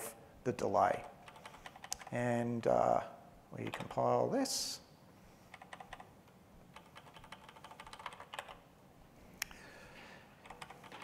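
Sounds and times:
typing on computer keyboard: 1.0s - 2.2s, 5.5s - 6.1s, 6.7s - 8.6s, 10.4s - 11.0s.

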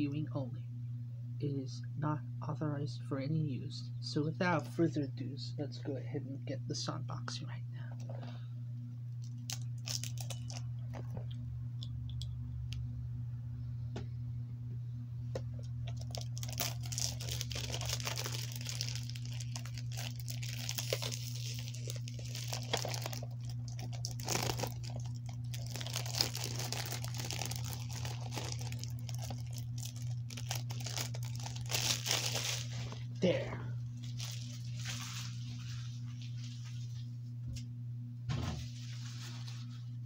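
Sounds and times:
steady low hum: 0.0s - 40.0s
plastic shrink wrap crinkling: 9.2s - 11.4s, 15.8s - 33.1s, 34.0s - 37.0s.

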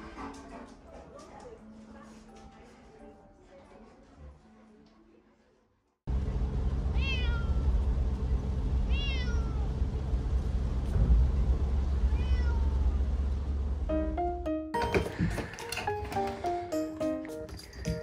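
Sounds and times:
cat meowing: 7.0s - 7.6s, 8.9s - 9.7s, 12.1s - 13.0s.

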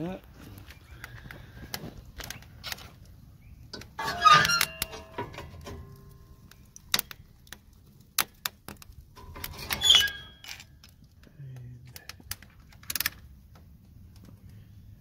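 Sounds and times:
wood fire crackling: 0.0s - 15.0s
metal door clattering and scraping: 3.8s - 6.2s, 9.2s - 10.7s
ringing metal clank: 4.0s - 6.2s.

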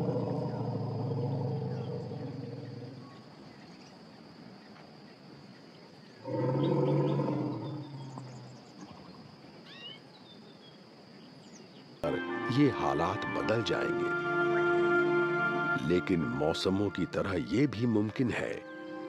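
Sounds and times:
elephant rumbling: 0.0s - 3.2s, 6.2s - 8.6s
high insect drone: 0.0s - 19.0s.

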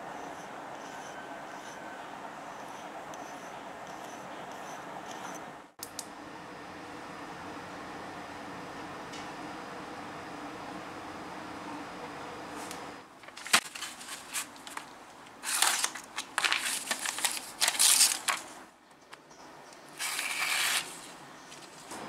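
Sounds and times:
paper rustling and crinkling: 13.2s - 18.6s, 20.0s - 22.0s
blade slicing through paper: 15.4s - 18.5s, 20.0s - 21.2s.

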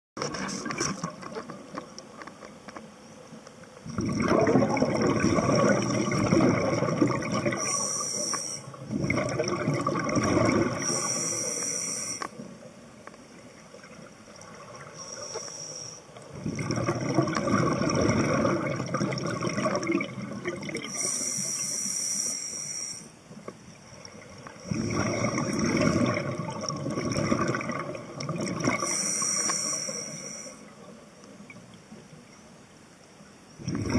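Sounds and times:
exhaled air bubbling: 3.8s - 12.7s, 16.2s - 21.8s, 23.9s - 31.8s, 33.6s - 33.9s
diver breathing through regulator: 10.8s - 12.3s, 28.8s - 30.7s.

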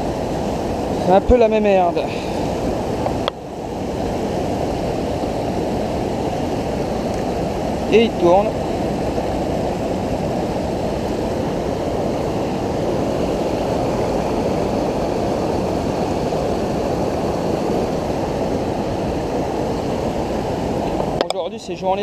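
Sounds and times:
river rushing over rapids: 0.0s - 22.0s.

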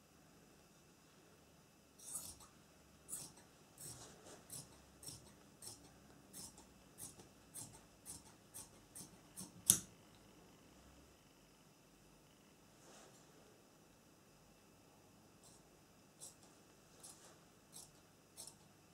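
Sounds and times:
shears snipping fabric: 2.0s - 2.5s, 3.1s - 9.9s, 16.2s - 18.7s.

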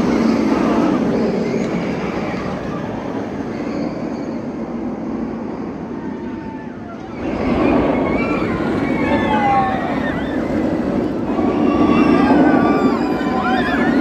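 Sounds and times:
roller coaster rumbling on track: 0.0s - 14.0s.

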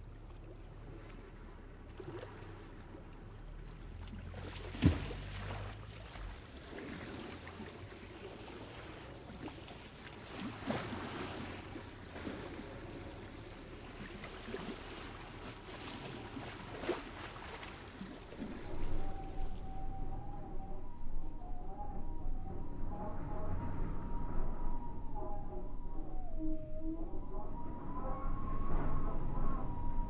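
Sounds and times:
small waves lapping and splashing: 0.0s - 20.0s.

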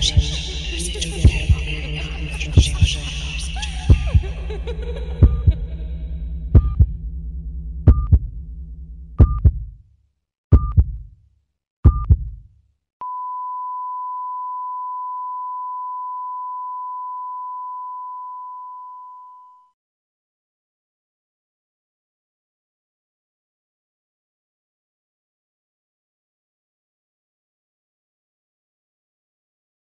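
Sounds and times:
low drone: 0.0s - 9.2s
heartbeat thumps: 0.0s - 9.8s, 10.5s - 11.1s, 11.8s - 12.5s
long steady beep: 13.0s - 19.8s.

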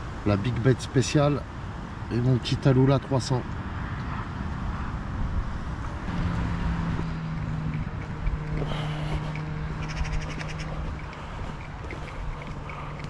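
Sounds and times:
wind noise on microphone: 3.4s - 12.8s
steady low hum: 6.0s - 13.0s.

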